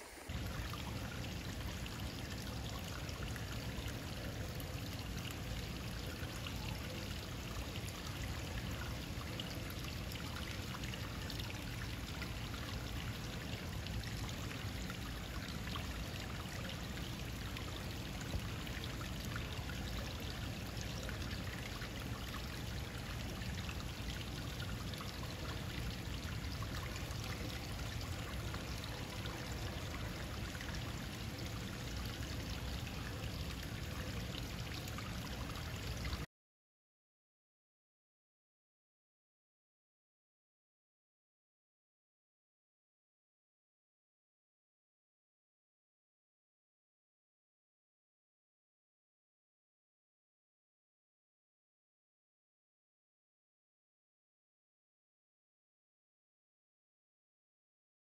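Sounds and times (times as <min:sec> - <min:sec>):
running water: 0:00.0 - 0:36.3.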